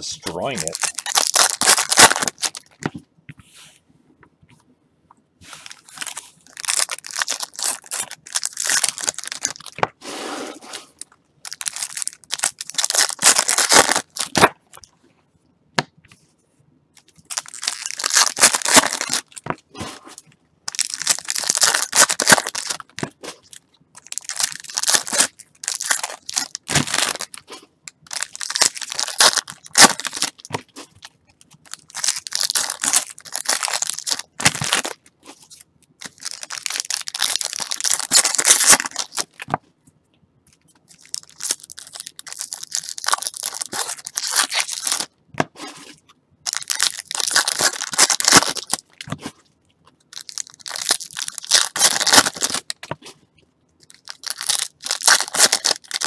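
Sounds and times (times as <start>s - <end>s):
foil wrappers ripping and crinkling: 0.4s - 2.8s, 5.5s - 9.8s, 10.9s - 14.5s, 17.2s - 19.5s, 20.7s - 39.5s, 40.9s - 45.1s, 45.8s - 49.1s, 50.1s - 52.8s, 53.8s - 56.0s.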